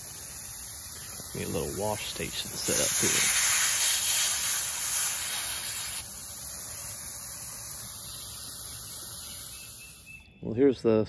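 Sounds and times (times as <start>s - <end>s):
hose nozzle spraying water: 0.0s - 10.1s
water splashing on cabbage: 0.9s - 6.1s.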